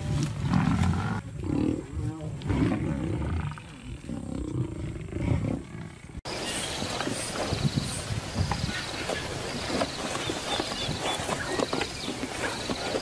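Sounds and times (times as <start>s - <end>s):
lion roaring and growling: 0.0s - 6.2s.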